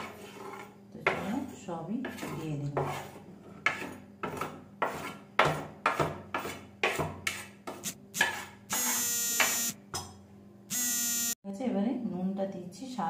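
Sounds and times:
metal spoon scraping plastic plate: 0:00.0 - 0:05.3, 0:05.9 - 0:08.7
loud buzzing tone: 0:08.7 - 0:09.8, 0:10.7 - 0:11.4.

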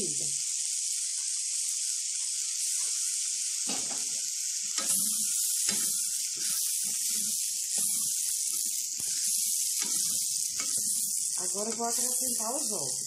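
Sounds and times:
sausage and vegetables sizzling: 0:00.0 - 0:13.0
spatula stirring and scraping: 0:04.8 - 0:13.0.

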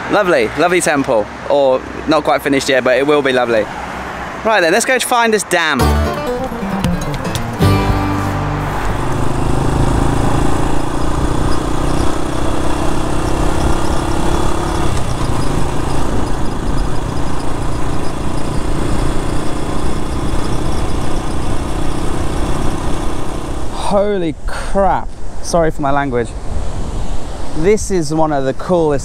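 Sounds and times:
motorbike engine running: 0:07.3 - 0:23.4
wind rumbling on microphone: 0:08.6 - 0:29.0.

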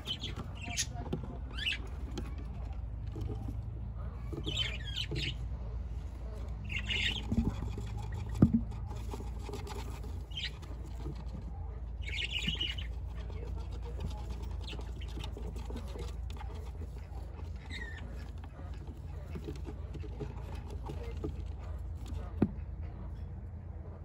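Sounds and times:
budgerigars chirping: 0:00.0 - 0:02.2, 0:04.3 - 0:05.5, 0:06.5 - 0:08.4, 0:09.8 - 0:11.0, 0:11.9 - 0:19.3.

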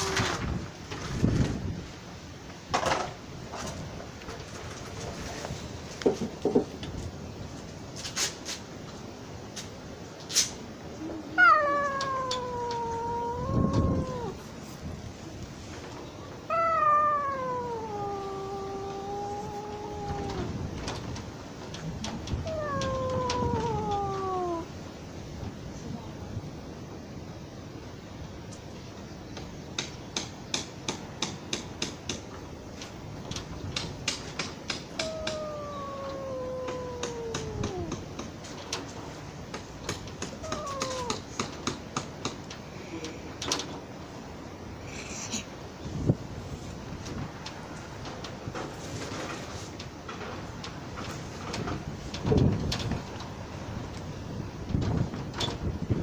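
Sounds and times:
cat yowling: 0:00.0 - 0:00.4, 0:11.0 - 0:14.5, 0:16.4 - 0:20.8, 0:22.1 - 0:24.8, 0:34.8 - 0:38.3, 0:40.2 - 0:41.4.

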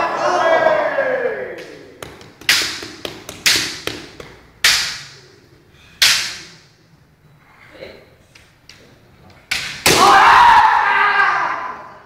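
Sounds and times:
bamboo sword strikes cracking: 0:02.4 - 0:05.3, 0:06.0 - 0:06.6, 0:09.5 - 0:10.2.

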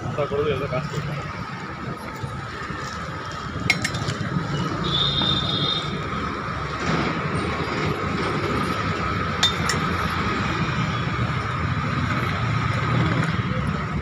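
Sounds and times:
road traffic rumble: 0:00.0 - 0:14.0
utensils clinking on metal pot: 0:03.7 - 0:04.1, 0:09.4 - 0:09.9.

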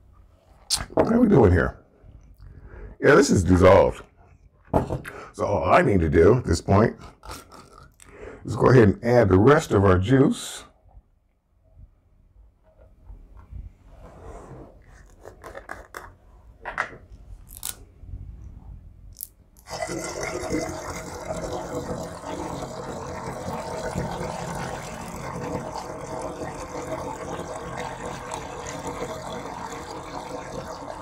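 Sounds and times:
juice pouring into glass jug: 0:19.6 - 0:31.0.

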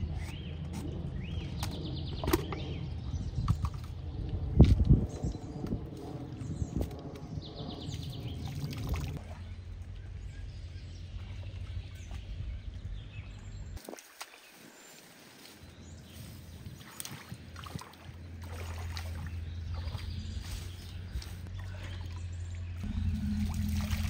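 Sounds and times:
low rumble: 0:00.0 - 0:13.8, 0:18.1 - 0:24.0
water sloshing and splashing: 0:08.3 - 0:10.0, 0:16.6 - 0:24.0.

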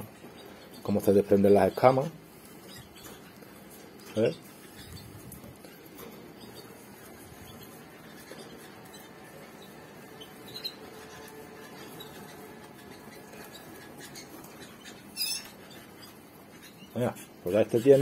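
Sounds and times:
canary chirps: 0:00.0 - 0:18.0
fingers rubbing bird legs: 0:02.3 - 0:17.4.

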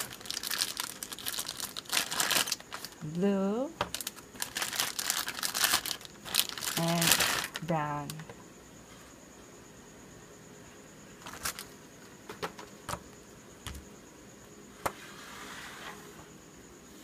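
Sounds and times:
soft scrape on table: 0:14.9 - 0:16.3.

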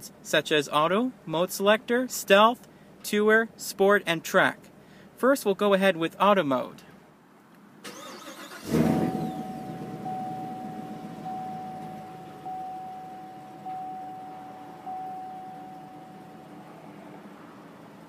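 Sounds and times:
car engine revving and idling: 0:08.1 - 0:18.0
pulsing high tone: 0:08.9 - 0:17.0.

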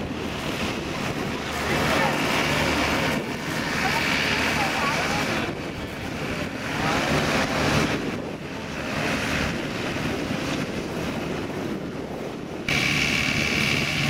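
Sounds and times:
combine harvester running: 0:00.0 - 0:14.0
machine high whine: 0:12.7 - 0:14.0.

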